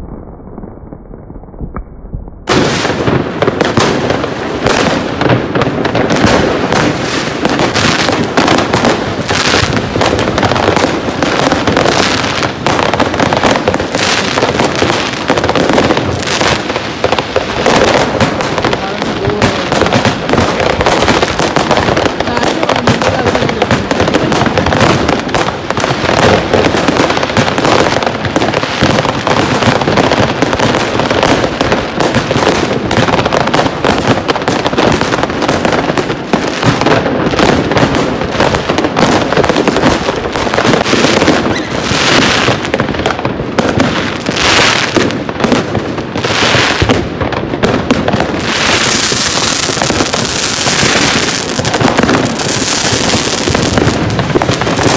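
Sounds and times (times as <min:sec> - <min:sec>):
fireworks and firecrackers banging: 0:00.0 - 0:54.9
hissing firework bursts: 0:02.5 - 0:54.9.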